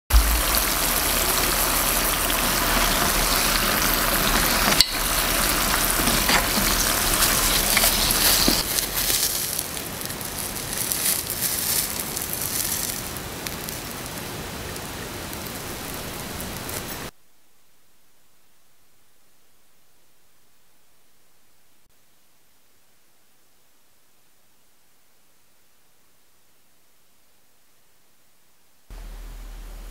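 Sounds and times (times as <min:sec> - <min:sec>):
dough sizzling in hot oil: 0:00.1 - 0:14.2
oil crackling: 0:00.1 - 0:17.1.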